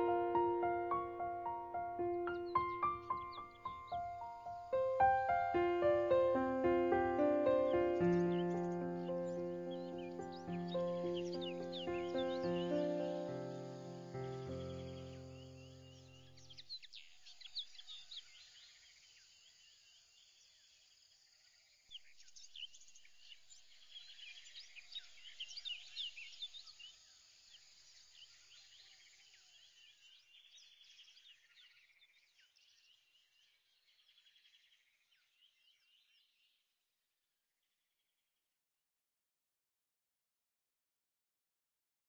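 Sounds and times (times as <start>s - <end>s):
birds chirping and trilling: 0.0s - 18.8s, 21.9s - 36.5s.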